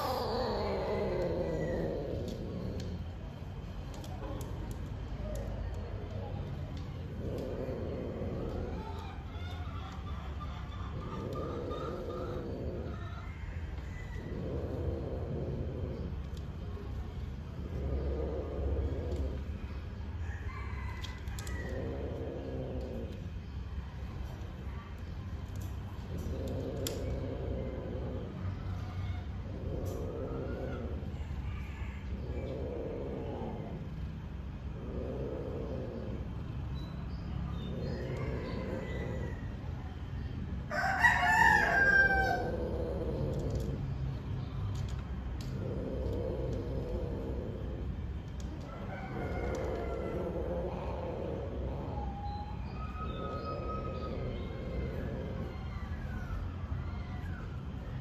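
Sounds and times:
cats yowling: 0.0 - 23.4, 24.0 - 36.3, 37.4 - 44.0, 44.8 - 58.0
rooster crowing: 13.0 - 14.6, 20.2 - 22.0, 31.1 - 32.3, 40.7 - 42.9, 48.6 - 50.8.

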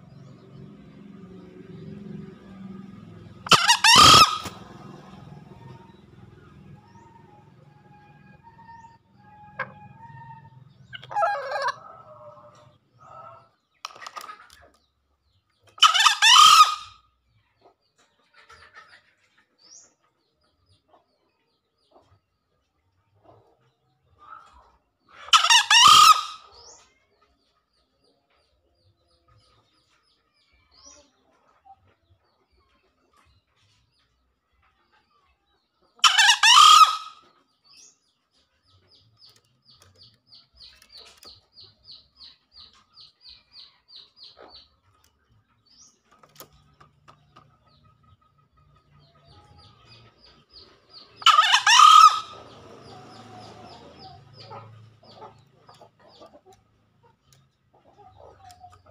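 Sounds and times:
junglefowl crowing: 3.4 - 6.0, 8.0 - 13.5, 15.8 - 17.0, 25.2 - 26.6, 36.0 - 37.3, 51.2 - 55.4.

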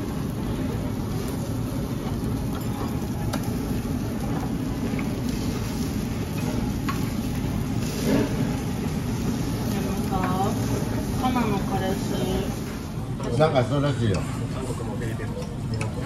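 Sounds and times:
ventilation hum: 0.0 - 16.0.

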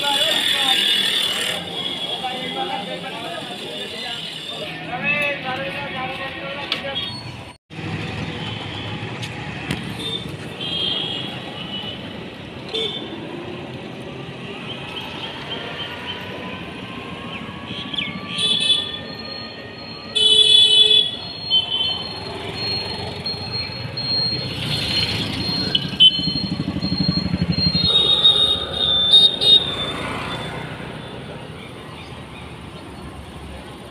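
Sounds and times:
vehicles passing: 0.0 - 33.9
car horns tooting: 9.9 - 13.2, 17.8 - 22.6, 27.6 - 31.3
motorbike engine passing: 22.1 - 31.0.

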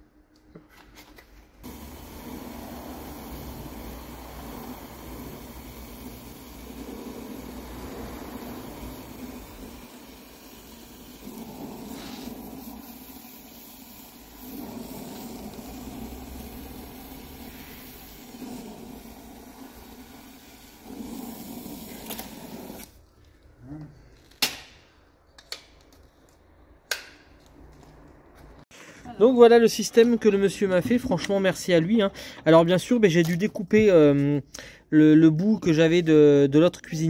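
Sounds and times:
brazing torch flame roaring: 1.6 - 22.9.

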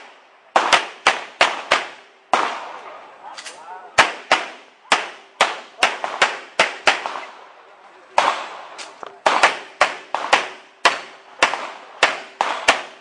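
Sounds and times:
pistol firing rapid shots: 0.5 - 2.8, 4.0 - 7.4, 8.2 - 13.0.

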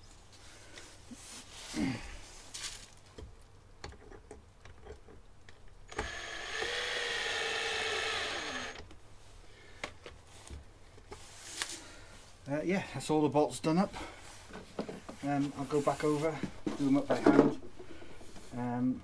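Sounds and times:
cordless screwdriver whining: 5.9 - 8.8.

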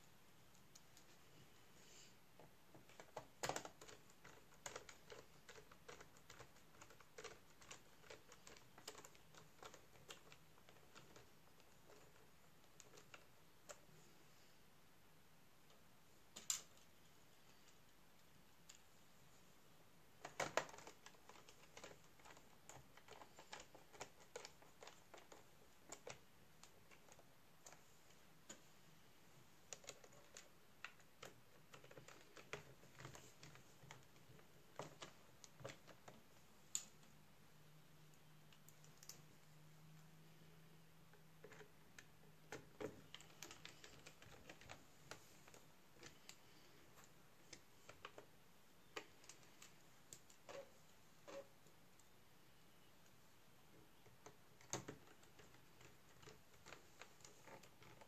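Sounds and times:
small plastic clicks and taps: 53.9 - 58.0.

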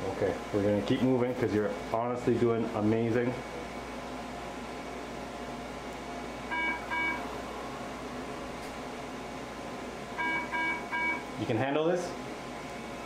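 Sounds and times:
steady background hum: 0.0 - 13.0
short electronic beeps: 6.5 - 7.2, 10.2 - 11.2.

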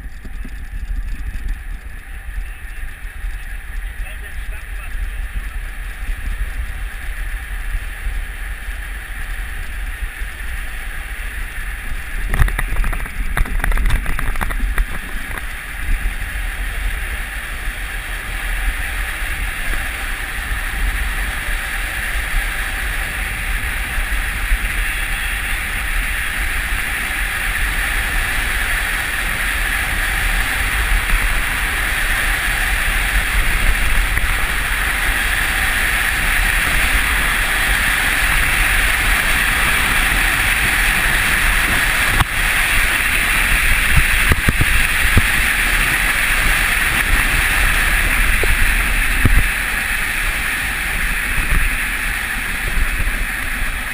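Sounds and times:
wind rushing over microphone: 0.0 - 53.9
sled runners hissing over ice: 14.5 - 53.9.

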